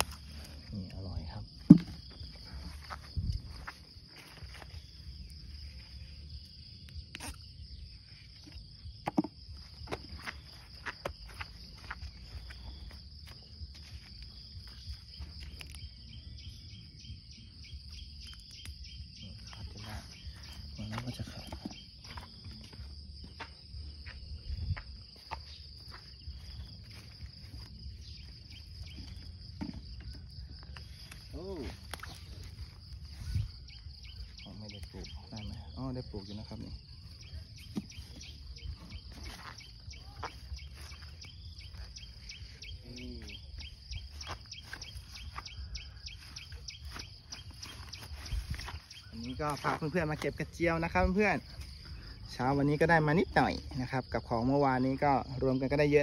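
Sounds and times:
high insect trilling: 0.0 - 56.0
lower insect trill: 0.0 - 56.0
footsteps in dry grass: 2.0 - 6.5, 10.0 - 16.6, 21.8 - 30.0, 37.0 - 50.5.

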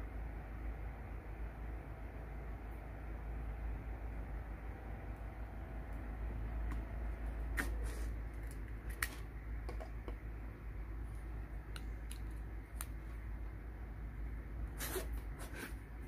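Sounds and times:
steady low hum: 0.0 - 16.0
plastic plugs clicking and knocking: 8.4 - 10.3.

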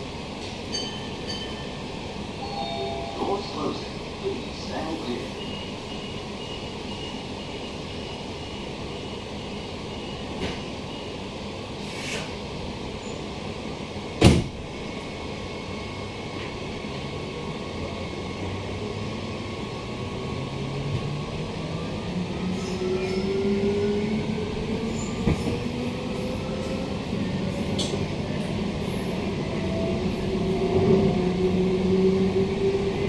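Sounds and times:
low train running rumble: 0.0 - 33.0.

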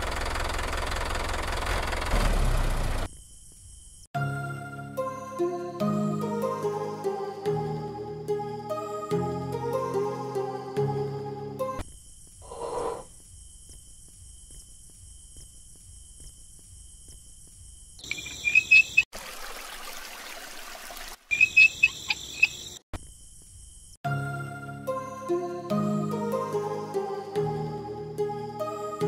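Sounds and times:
high-pitched insect drone: 3.0 - 19.1
background music: 4.2 - 11.8, 24.1 - 29.0
loud sharp chirps: 18.0 - 19.1, 21.3 - 22.8.

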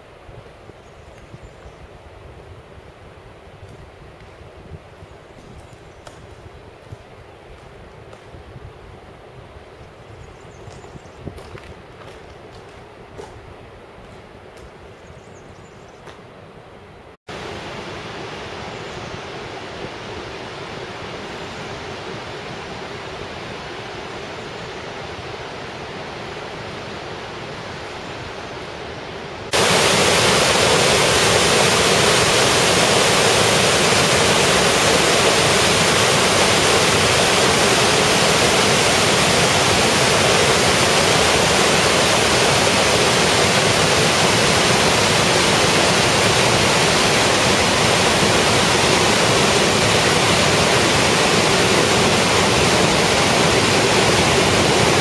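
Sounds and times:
water rushing over rocks: 29.5 - 55.0.

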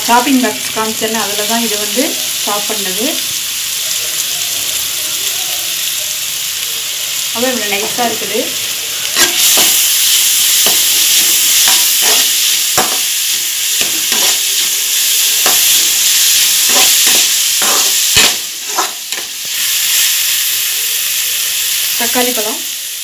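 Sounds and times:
vegetables sizzling in oil: 0.0 - 23.0
utensil scraping a metal pan: 10.6 - 13.0, 16.6 - 19.2.

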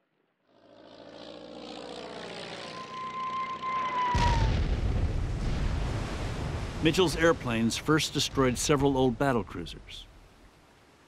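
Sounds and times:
propeller aircraft engine droning: 0.0 - 5.4
falling bomb whistle: 2.6 - 4.8
loud explosion rumbling: 4.1 - 8.6.

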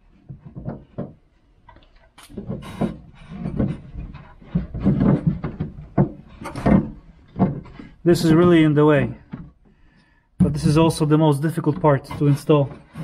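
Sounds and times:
hands working door lock parts: 10.4 - 13.0.

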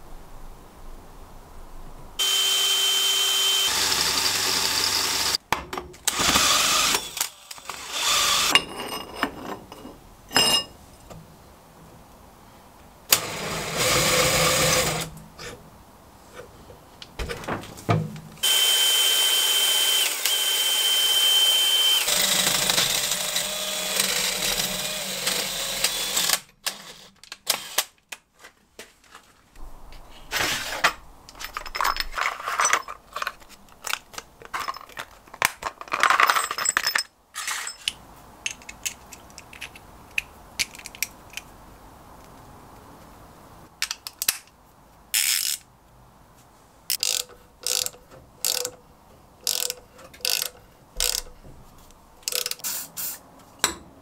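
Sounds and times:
cordless drill boring into metal: 2.2 - 5.4, 6.1 - 8.5, 13.1 - 15.1, 18.4 - 27.8
plastic parts boxes rattling: 30.4 - 37.8.

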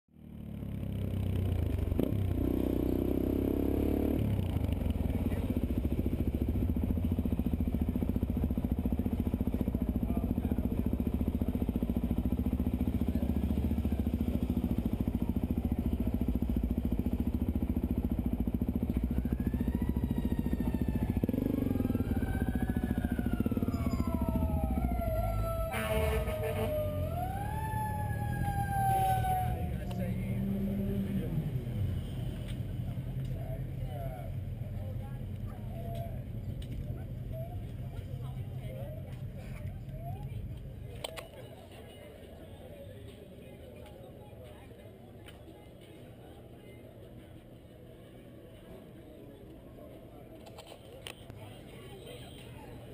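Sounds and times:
motorcycle engine idling: 0.2 - 43.6
siren wailing: 19.2 - 30.0.

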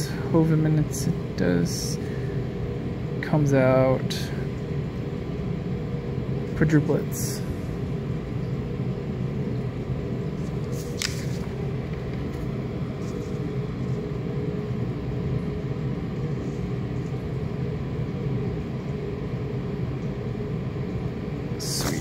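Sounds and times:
low room rumble and hum: 0.0 - 22.0
paper rustling: 10.4 - 13.5.

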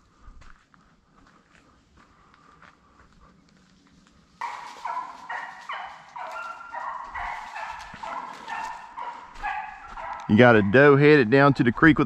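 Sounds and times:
hounds barking and baying: 4.4 - 11.5.

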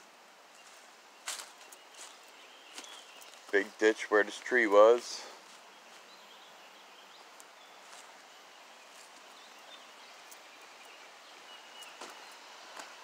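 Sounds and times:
faint steady hiss: 0.0 - 13.0
high bird chirps: 5.7 - 12.7.

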